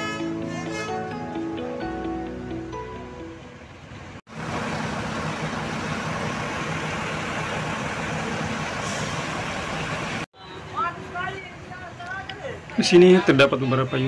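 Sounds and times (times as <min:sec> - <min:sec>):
bus diesel engine idling: 0:02.0 - 0:13.2.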